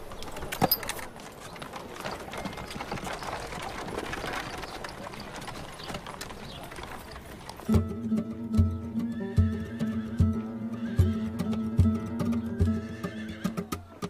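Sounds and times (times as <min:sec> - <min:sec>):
carriage wheels rattling on dirt: 0:00.0 - 0:14.0
horse hooves clip-clopping: 0:00.0 - 0:14.0
music: 0:07.7 - 0:14.0.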